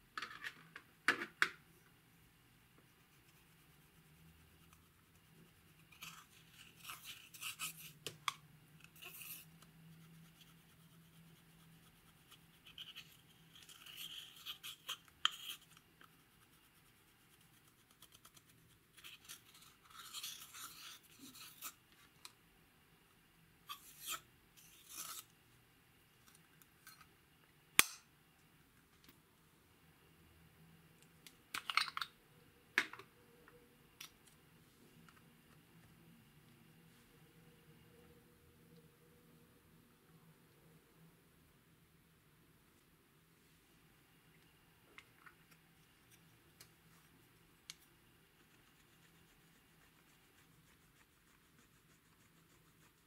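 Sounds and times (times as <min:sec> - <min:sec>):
spatula scraping powder: 0:03.0 - 0:08.1, 0:08.8 - 0:21.8, 0:23.7 - 0:25.3.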